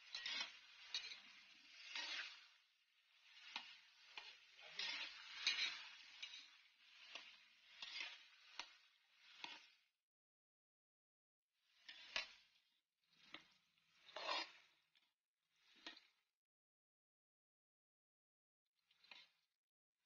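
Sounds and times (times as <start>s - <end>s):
vegetables sizzling in oil: 0.0s - 9.6s
spatula scraping a pan: 0.0s - 9.8s, 11.8s - 12.5s, 13.3s - 14.7s.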